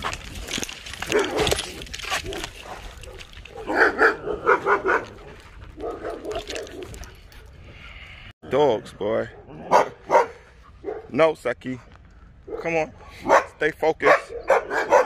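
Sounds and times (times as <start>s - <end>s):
dog barking: 1.1s - 1.6s, 2.2s - 7.0s, 9.3s - 11.2s, 12.5s - 15.0s.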